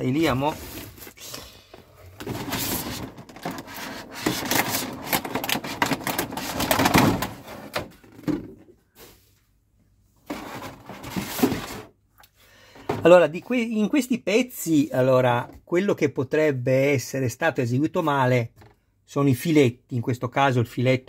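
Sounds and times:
plastic packaging crackling: 0:02.2 - 0:07.5.

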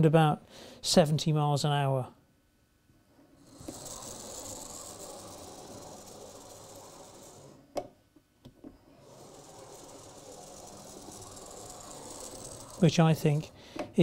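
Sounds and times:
model locomotive whirring: 0:03.4 - 0:07.9, 0:08.8 - 0:14.0.

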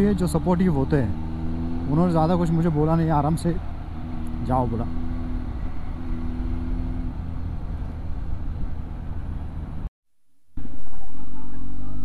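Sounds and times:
motorcycle engine running: 0:00.0 - 0:09.9
wind rush on camera: 0:03.6 - 0:09.9.

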